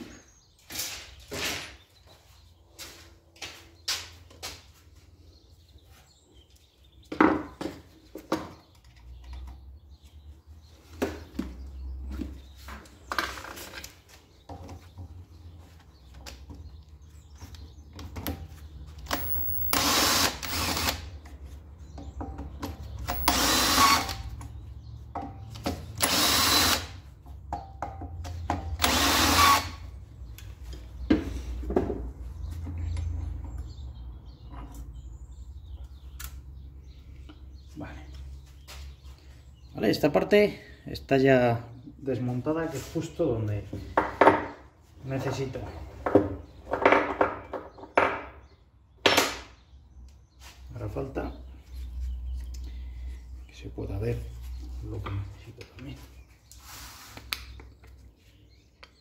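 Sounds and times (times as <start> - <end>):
cordless drill running: 19.1 - 21.1, 23.1 - 24.2, 26.0 - 27.0, 28.8 - 29.8.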